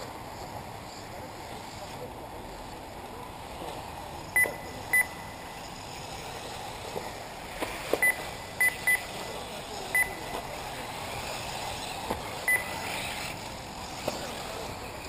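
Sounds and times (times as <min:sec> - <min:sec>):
steady outdoor hiss: 0:00.0 - 0:15.0
short high electronic beeps: 0:04.4 - 0:05.4, 0:08.0 - 0:09.1, 0:12.5 - 0:12.8.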